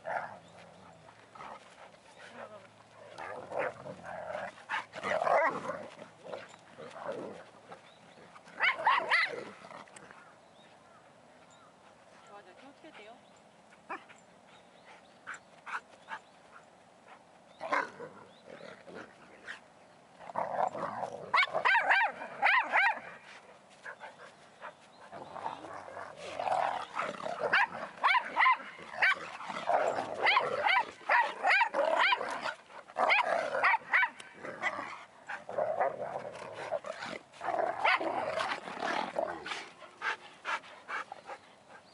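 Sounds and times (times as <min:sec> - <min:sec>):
dogs growling: 0:00.0 - 0:10.3, 0:17.5 - 0:19.6, 0:20.2 - 0:23.2, 0:23.8 - 0:41.9
dogs barking: 0:27.0 - 0:29.2.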